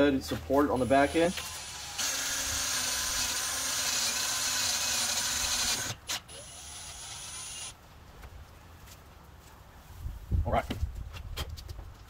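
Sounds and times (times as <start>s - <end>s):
quiet drill whir: 0.6s - 7.7s
power drill whining through metal: 0.6s - 7.8s
drill click: 0.8s - 7.7s.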